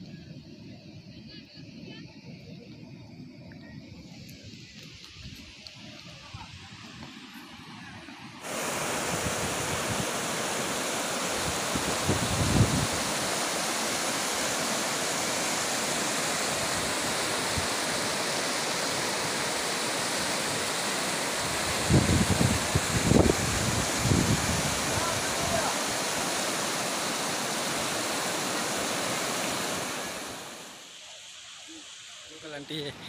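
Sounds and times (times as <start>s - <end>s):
river rushing over rapids: 5.5s - 33.0s
wind buffeting microphone: 11.4s - 13.2s, 21.4s - 25.7s.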